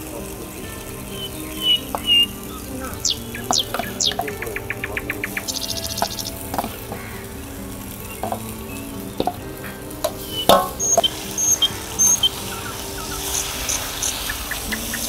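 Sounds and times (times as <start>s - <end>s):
chicken sizzling in hot oil: 0.0s - 15.0s
metal spatula clanking on pan: 10.0s - 11.2s.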